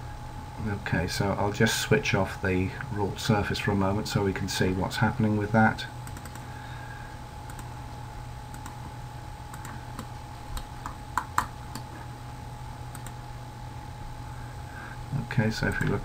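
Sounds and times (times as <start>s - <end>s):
low electrical hum: 0.0s - 16.0s
computer mouse clicks: 6.0s - 6.4s, 7.5s - 7.7s, 8.5s - 8.8s, 9.5s - 11.9s, 12.9s - 13.2s.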